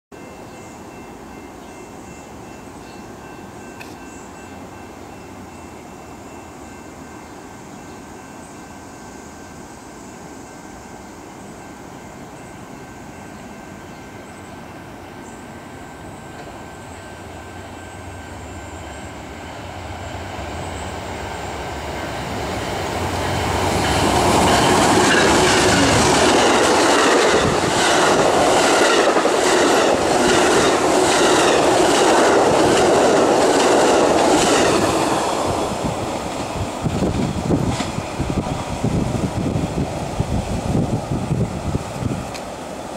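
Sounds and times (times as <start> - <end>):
passenger train rushing past: 0.2 - 42.9
wheels clacking over rail joints: 23.2 - 38.6.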